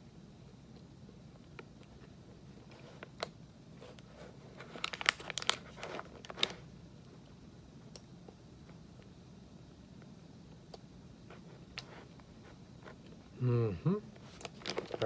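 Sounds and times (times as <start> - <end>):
plastic pouch crinkling: 4.6 - 6.7, 14.3 - 15.0.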